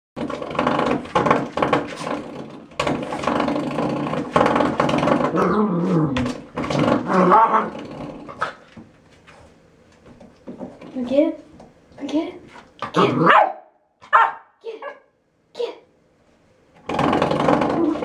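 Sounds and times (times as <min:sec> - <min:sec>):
dog growling: 0:03.2 - 0:08.6, 0:12.8 - 0:13.4.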